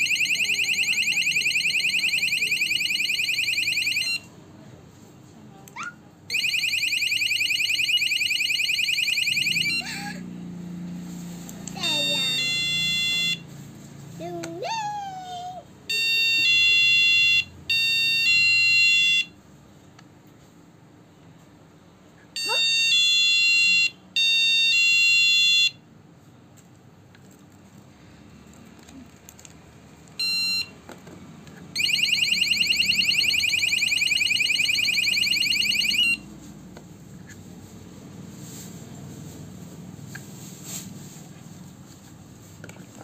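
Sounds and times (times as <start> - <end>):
fast-warbling alarm siren: 0.0 - 4.2, 6.3 - 10.0, 12.0 - 13.4, 31.8 - 36.3
electronic alarm tone blasts: 6.3 - 9.8, 11.8 - 13.5, 15.9 - 19.3, 31.8 - 36.3.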